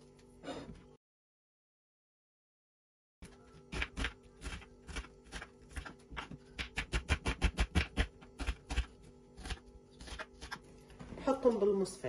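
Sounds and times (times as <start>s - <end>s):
knife slicing onion on board: 3.6s - 10.6s.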